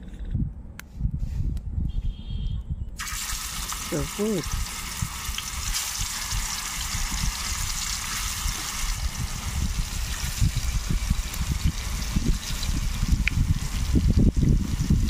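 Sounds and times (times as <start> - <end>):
wind rumbling on microphone: 0.0 - 15.0
fish sizzling in hot oil: 3.0 - 15.0.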